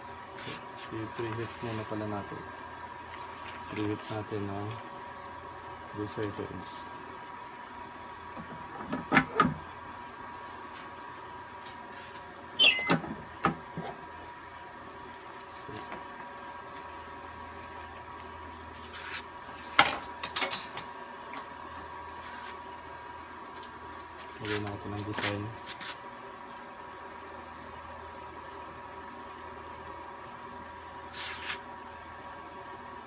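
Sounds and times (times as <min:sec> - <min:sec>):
short high-pitched squeal: 0:12.6 - 0:13.0.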